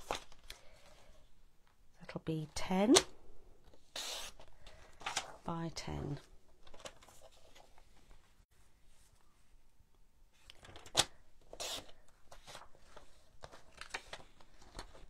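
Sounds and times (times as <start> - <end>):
paper rustling: 10.6 - 15.0.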